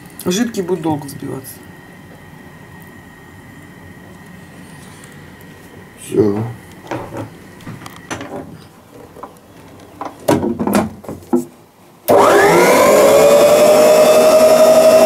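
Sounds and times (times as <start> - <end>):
stand mixer motor whining: 12.1 - 15.0.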